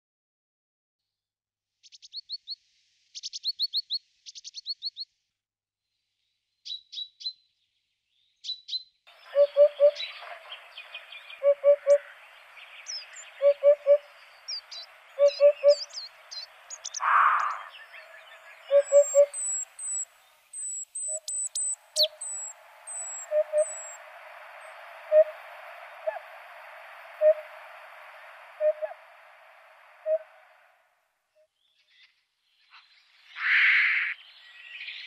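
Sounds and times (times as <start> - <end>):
birds singing in background: 1.8 - 5.2, 6.0 - 30.8, 31.4 - 35.0
hoopoe low oop calls: 9.1 - 30.8.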